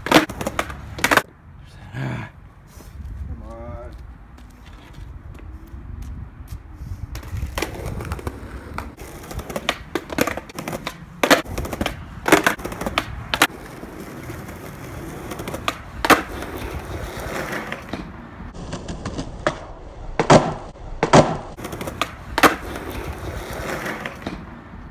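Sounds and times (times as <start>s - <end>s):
skateboard cracking and landing: 0.0s - 1.3s, 7.1s - 24.5s
skateboard wheels rolling: 0.0s - 1.3s, 4.3s - 24.9s.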